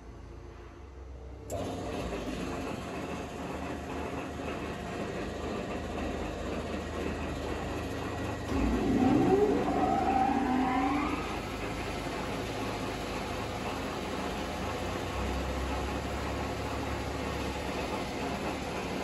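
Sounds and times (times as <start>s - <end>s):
machine drive whine spinning up: 5.1s - 19.0s.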